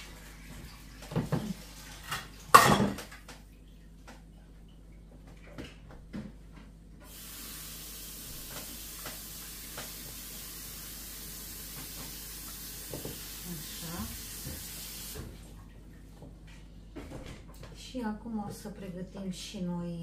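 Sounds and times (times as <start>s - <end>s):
kitchenware clattering on a table: 1.1s - 3.3s.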